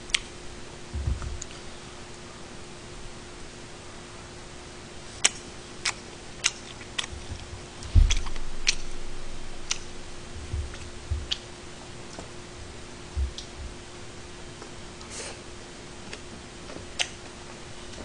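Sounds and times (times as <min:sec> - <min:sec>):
faint steady hum: 0:00.0 - 0:18.0
dull low thump: 0:00.9 - 0:01.4, 0:07.1 - 0:11.4, 0:13.1 - 0:13.8
eating noises: 0:05.2 - 0:11.5.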